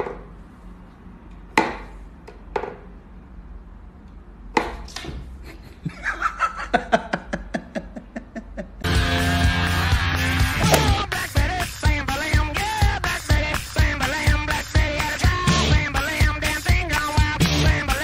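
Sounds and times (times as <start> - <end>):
loud music: 8.8 - 18.0.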